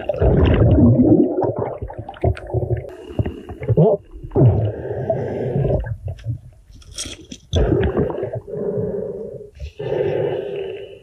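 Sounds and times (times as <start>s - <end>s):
underwater gravel crunching and scraping: 6.1s - 7.8s.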